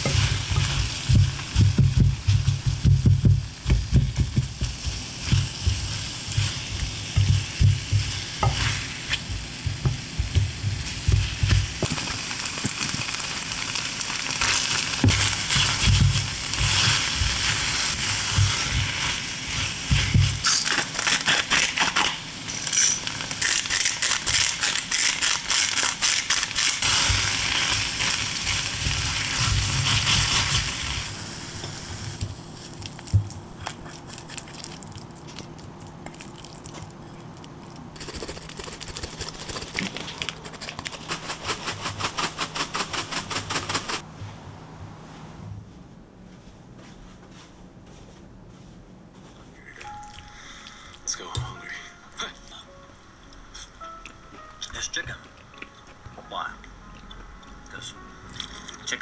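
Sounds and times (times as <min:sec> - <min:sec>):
risotto sizzling in a pan: 0:00.0 - 0:33.2.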